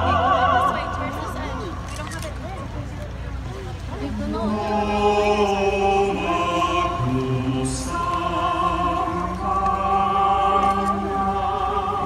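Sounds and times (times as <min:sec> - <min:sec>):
voices singing in chorus: 0:00.0 - 0:01.6, 0:04.1 - 0:12.0.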